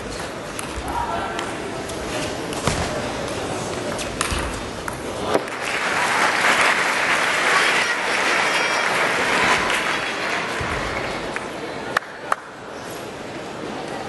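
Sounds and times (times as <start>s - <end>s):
crowd applauding: 5.4s - 11.5s.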